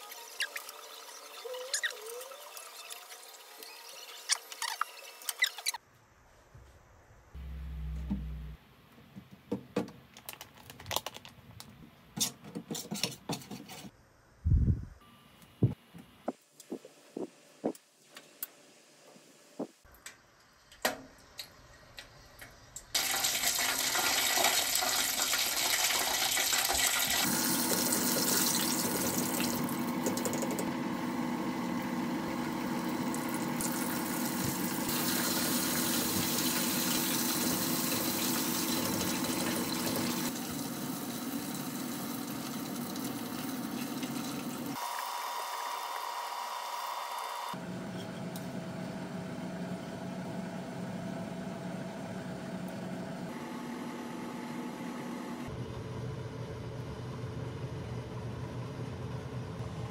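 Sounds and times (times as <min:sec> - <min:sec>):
low steady hum: 0:06.6 - 0:08.8
deep-frying sizzle: 0:23.0 - 0:30.6, 0:32.8 - 0:44.8.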